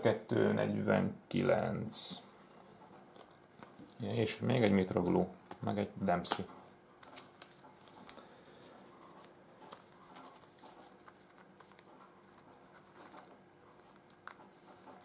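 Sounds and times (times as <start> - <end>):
trading cards clicking and rustling: 5.5 - 15.0.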